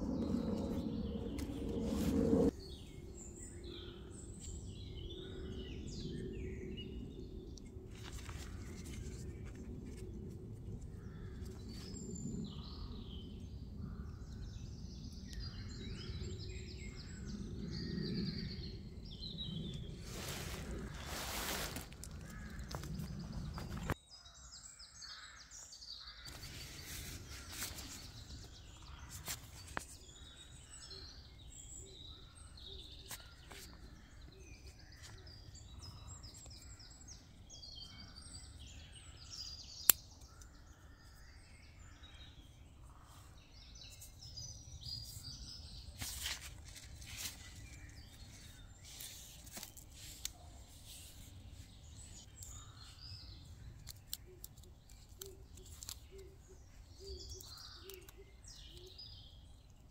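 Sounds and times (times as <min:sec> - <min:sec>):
songbirds chirping and singing: 0:00.0 - 0:59.9
tarp rustling and handling: 0:20.0 - 0:24.0.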